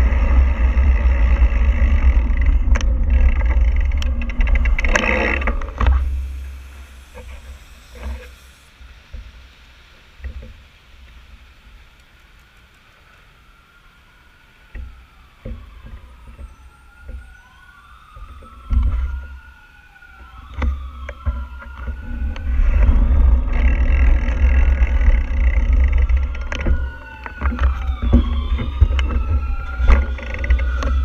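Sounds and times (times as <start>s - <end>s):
heavy low rumble with knocks: 0.0s - 6.4s, 20.6s - 31.0s
emergency siren wailing: 0.0s - 8.4s, 13.0s - 31.0s.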